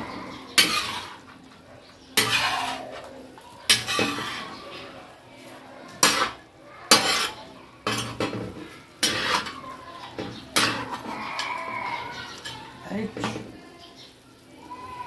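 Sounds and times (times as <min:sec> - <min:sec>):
metal spatula scraping metal pan: 0:00.0 - 0:01.3, 0:02.2 - 0:05.0, 0:05.9 - 0:13.5.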